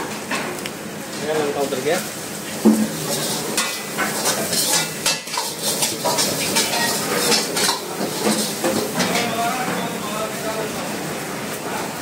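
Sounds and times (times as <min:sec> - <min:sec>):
chicken sizzling: 0:00.0 - 0:12.0
ladle scraping a wok: 0:02.3 - 0:09.9.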